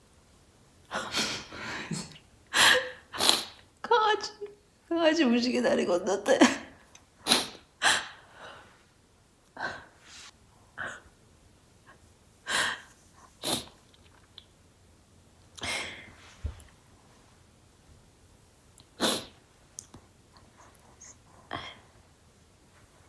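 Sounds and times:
sneeze-like nasal bursts: 3.1s - 3.6s, 7.2s - 8.2s, 13.4s - 13.8s, 19.0s - 19.4s.

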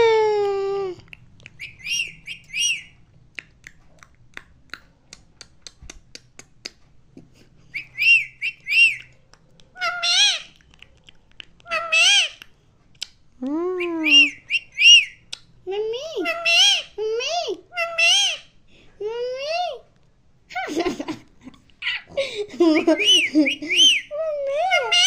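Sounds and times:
parakeet calling: 1.5s - 3.0s, 7.8s - 9.1s, 9.8s - 10.6s, 11.6s - 12.4s, 14.0s - 15.3s, 16.2s - 17.0s, 17.7s - 18.6s, 21.8s - 22.1s, 22.8s - 25.0s.

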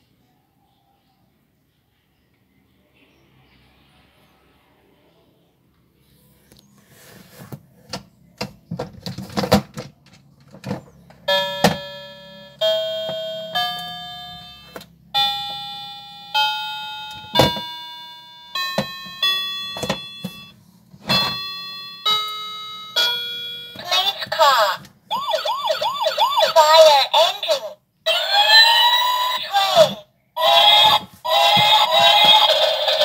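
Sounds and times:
toy keyboard electronic notes: 11.2s - 27.0s, 28.1s - 33.0s.

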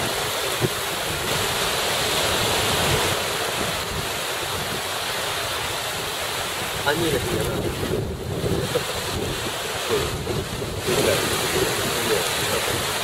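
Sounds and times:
small waves washing: 0.0s - 13.0s
wind on microphone: 0.0s - 13.0s.

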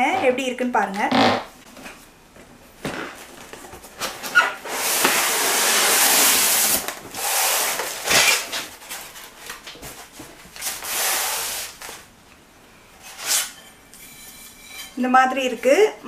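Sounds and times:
sharp foam scrape: 4.6s - 8.5s, 10.8s - 11.8s.

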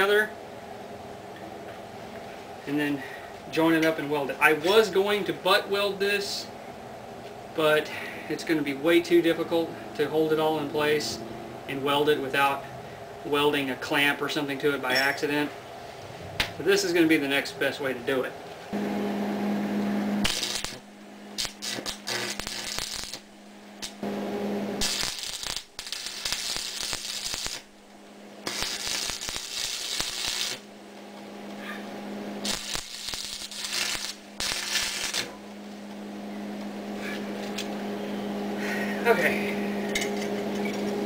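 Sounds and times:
low hum: 6.4s - 13.8s, 15.6s - 41.0s
arc welder crackling: 19.8s - 37.8s.

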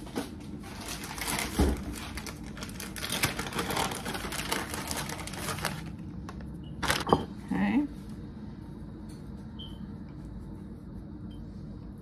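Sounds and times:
plastic bag crinkling: 0.6s - 6.2s, 6.8s - 7.1s.

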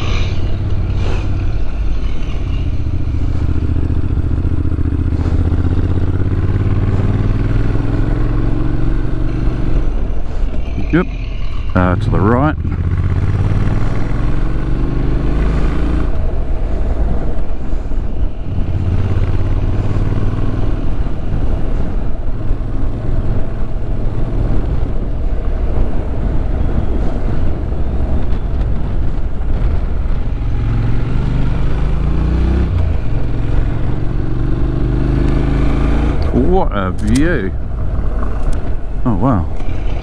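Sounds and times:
motorcycle engine running: 0.0s - 25.0s.

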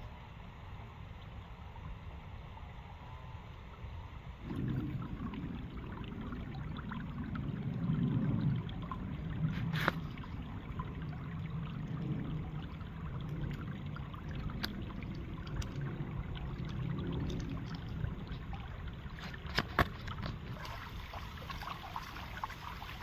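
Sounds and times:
stream running over rocks: 4.4s - 23.0s
splashes of feet in water: 17.8s - 23.0s.

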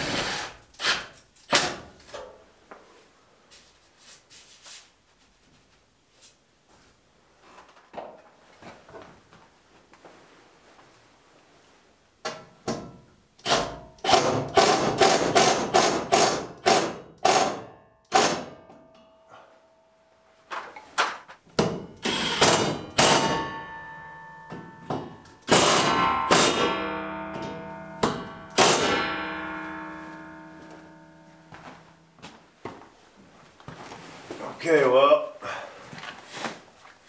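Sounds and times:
metal pipe ringing: 17.6s - 20.2s, 22.7s - 32.2s.

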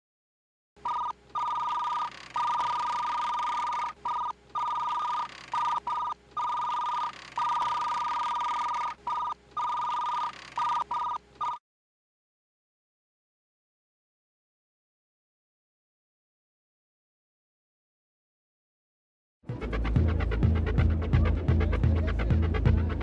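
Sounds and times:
electronic two-tone beeping: 0.8s - 11.6s.

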